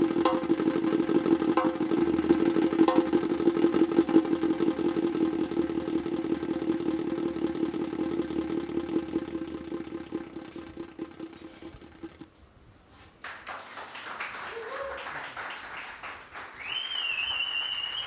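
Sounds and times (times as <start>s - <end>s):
djembe drum roll: 0.0s - 12.3s.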